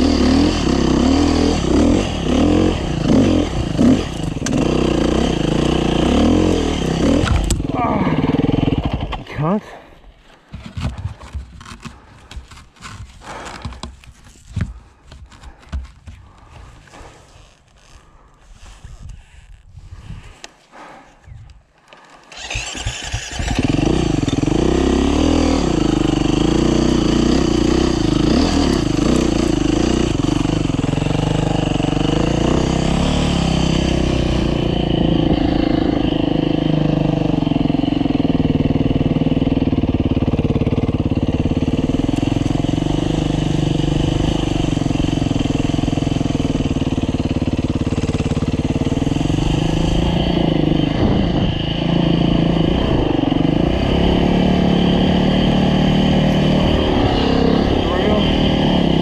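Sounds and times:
dirt bike engine: 0:00.0 - 0:09.7, 0:21.9 - 0:59.0.

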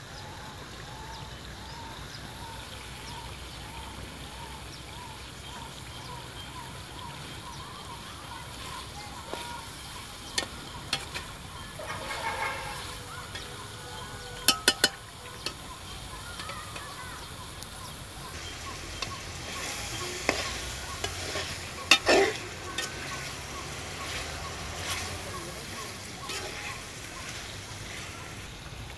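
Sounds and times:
curry sizzling in a pan: 0:01.7 - 0:28.9
metal spatula scraping a pan: 0:08.6 - 0:13.7, 0:14.4 - 0:15.7, 0:18.4 - 0:28.4
spatula clatter: 0:09.3 - 0:13.6, 0:14.4 - 0:15.7, 0:18.4 - 0:28.2.

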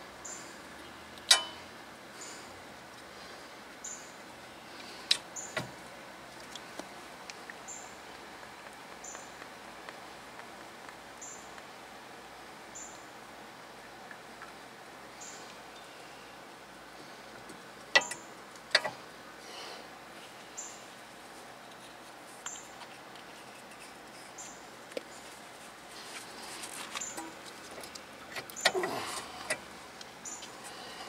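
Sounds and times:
metal clicks of brake caliper: 0:01.2 - 0:01.6.

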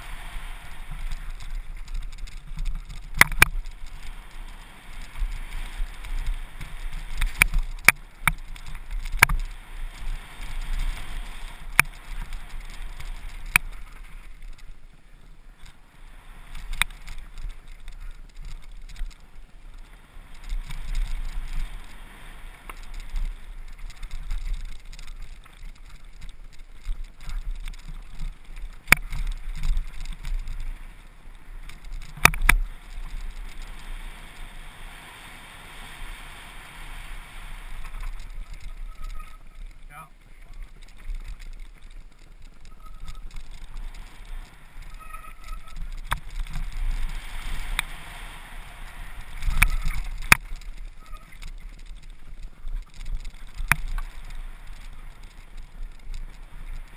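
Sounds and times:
bike rattling over bumps: 0:00.0 - 0:56.9
tyres on loose stones: 0:00.8 - 0:14.9, 0:16.4 - 0:34.3, 0:37.6 - 0:48.0, 0:49.1 - 0:56.9
wind on microphone: 0:36.0 - 0:56.9.

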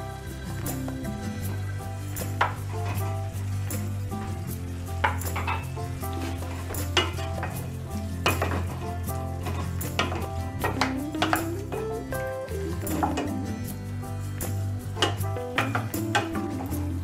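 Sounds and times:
background music sustained tones: 0:00.0 - 0:17.0
food sizzling: 0:00.0 - 0:17.0
wooden spoon knocking metal pot: 0:05.0 - 0:11.9, 0:14.9 - 0:16.7.

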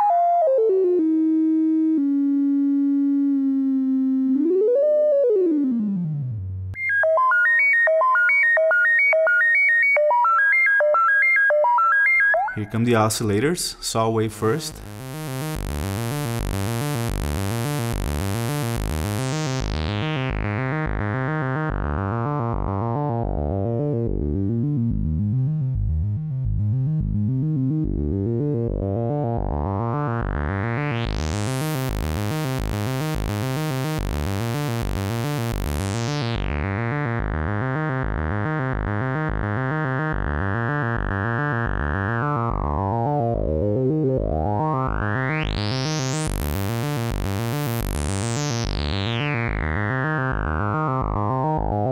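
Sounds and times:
synth sawtooth sequence: 0:14.5 - 0:22.0.

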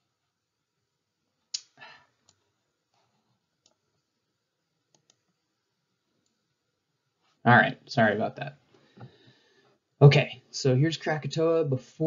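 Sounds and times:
computer mouse clicks: 0:04.9 - 0:05.2.

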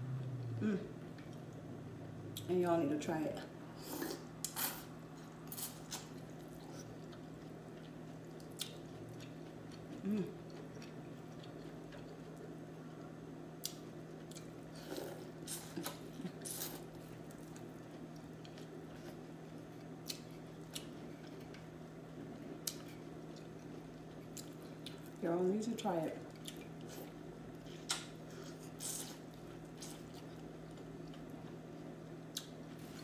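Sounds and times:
steady low hum: 0:00.0 - 0:33.0
person humming: 0:00.4 - 0:01.0, 0:10.0 - 0:10.4
chewing: 0:03.9 - 0:25.2, 0:26.2 - 0:33.0.

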